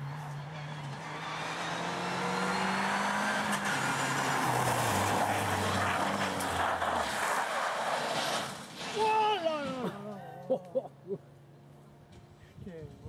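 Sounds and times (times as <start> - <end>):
rally car engine passing: 0.0 - 9.0
tyres hissing on wet road: 3.7 - 9.3.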